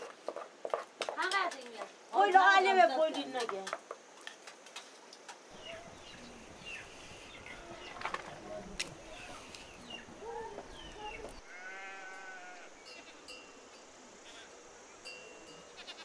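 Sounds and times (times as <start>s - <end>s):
livestock bleating: 9.0s - 9.6s, 11.0s - 13.4s, 14.2s - 14.6s, 15.7s - 16.0s.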